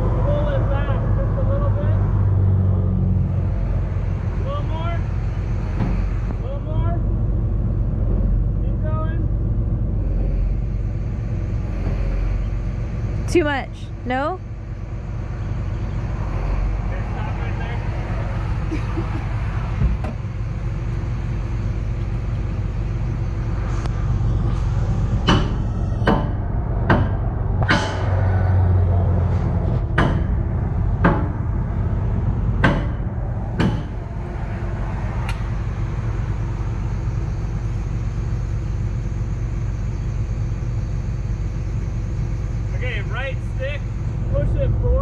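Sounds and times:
excavator diesel engine running: 0.0 - 45.0
sharp metal knocks: 25.1 - 34.4.

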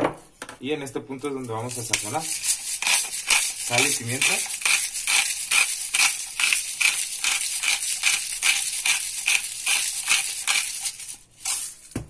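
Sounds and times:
spice grinder grinding: 1.4 - 11.9.

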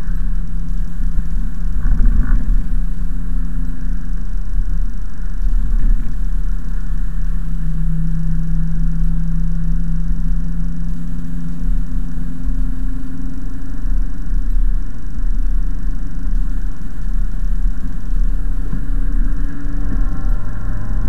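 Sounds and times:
car engine hum: 0.0 - 21.0
tyres on wet road: 17.6 - 21.0.

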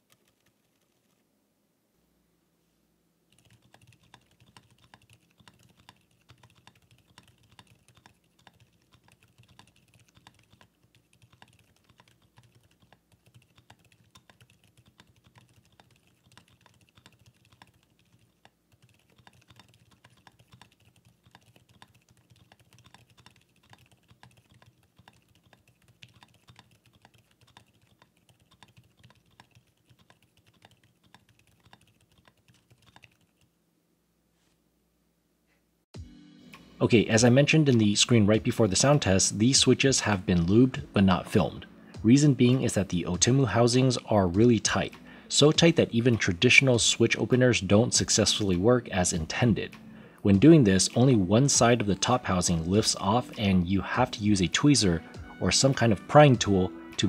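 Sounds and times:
quiet fast keyboard typing: 0.0 - 1.2, 3.3 - 33.6, 50.8 - 54.6.

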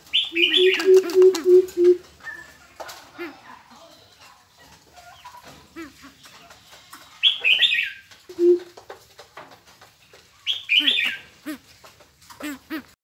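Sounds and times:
birds harsh chattering calls: 0.0 - 3.4, 10.4 - 13.0.

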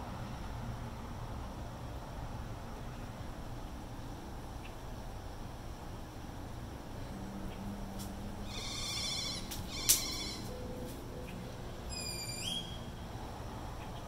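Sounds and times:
birds calling: 8.4 - 13.1.

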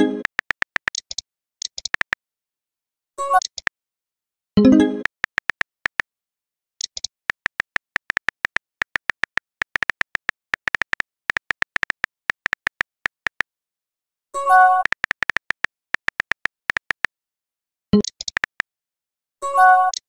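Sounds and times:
phone keyboard typing ticks: 0.0 - 2.2, 3.4 - 3.8, 4.6 - 6.1, 6.8 - 13.5, 14.4 - 17.2, 18.0 - 18.7.

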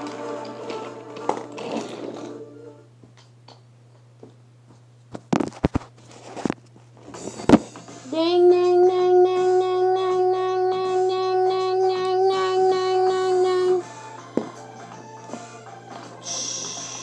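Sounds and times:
toy motor hum: 16.2 - 17.0.

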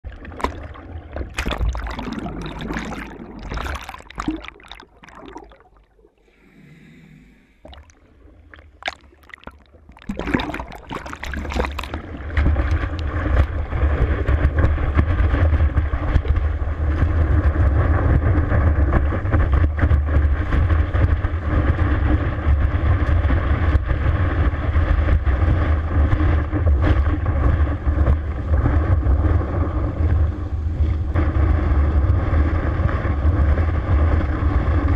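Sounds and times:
water splashing and churning: 0.0 - 23.1
low rumble: 0.0 - 34.9
rush of wake water: 0.0 - 34.9.

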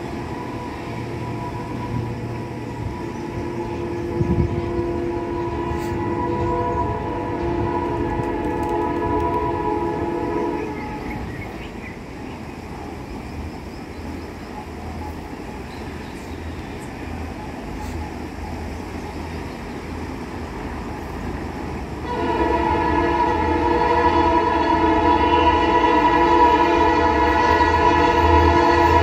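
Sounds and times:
locomotive engine drone: 0.0 - 29.0
locomotive horn chord: 0.2 - 11.3, 22.0 - 29.0.

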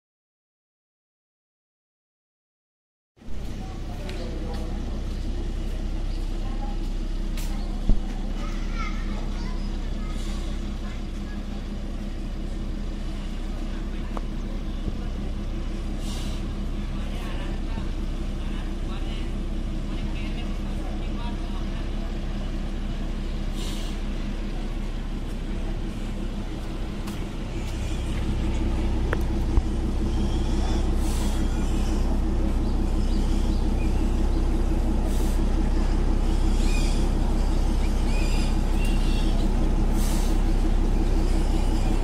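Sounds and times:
diesel locomotive engine running: 3.2 - 42.0
short hisses of air: 16.0 - 16.5, 23.5 - 24.0, 39.9 - 40.4.

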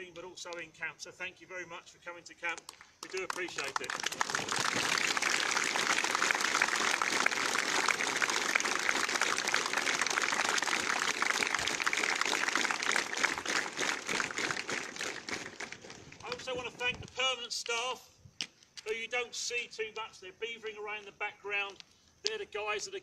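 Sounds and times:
crowd applauding: 3.0 - 16.4.

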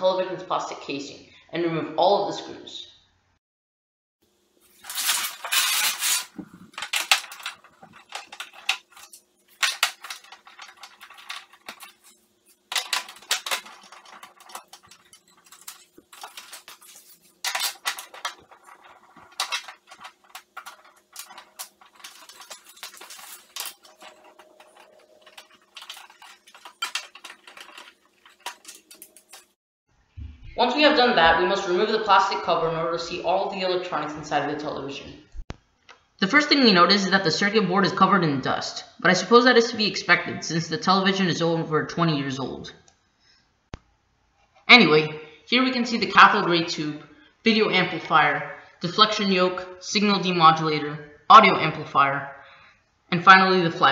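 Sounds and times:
screwdriver and screws clinking: 4.8 - 29.5.

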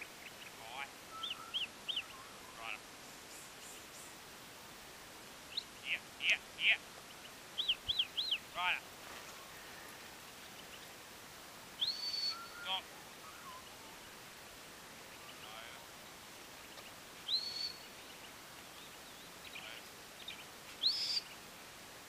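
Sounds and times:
rising whistles: 1.1 - 2.6, 11.8 - 14.0, 17.3 - 17.8.

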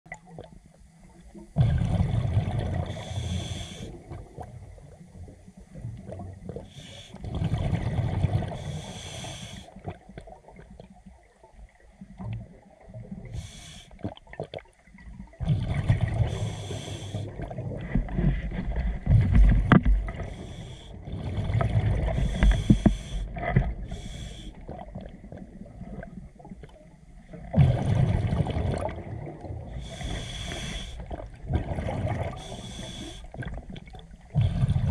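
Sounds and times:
diver exhaling bubbles underwater: 1.6 - 4.6, 7.2 - 8.8, 15.3 - 26.4, 27.4 - 34.9
regulator inhalation hiss: 2.9 - 4.0, 6.7 - 7.2, 8.6 - 9.8, 13.3 - 14.0, 16.3 - 17.3, 20.2 - 21.0, 22.2 - 23.3, 23.9 - 24.6, 29.8 - 31.1, 32.4 - 33.3.

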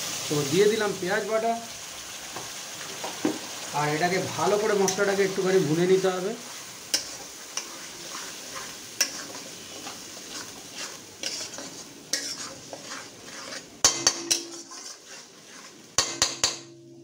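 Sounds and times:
paste sizzling in hot oil: 0.0 - 16.6
metal spatula scraping pan: 6.5 - 17.0
spatula knocking against pan: 13.8 - 14.5, 16.0 - 16.7.

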